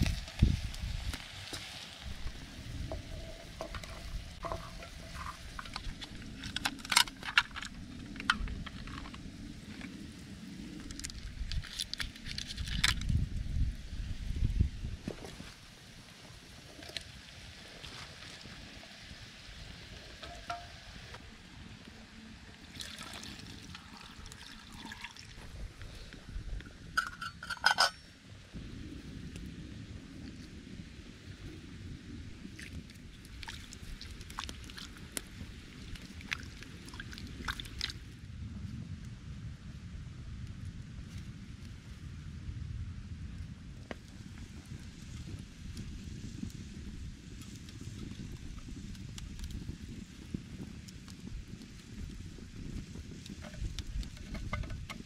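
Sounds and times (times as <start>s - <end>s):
liquid trickling: 22.6s - 25.6s.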